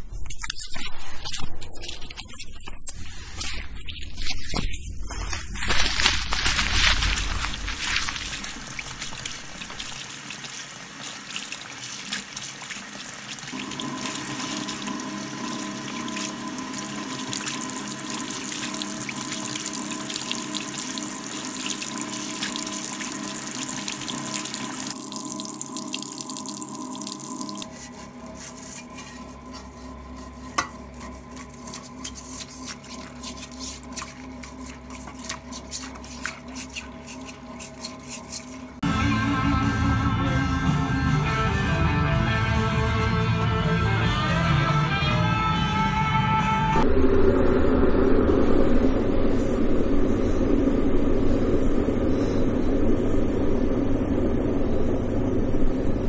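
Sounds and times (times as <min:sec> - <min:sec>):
steady multi-tone hum: 0:00.0 - 0:56.0
water running into sink: 0:06.4 - 0:29.6.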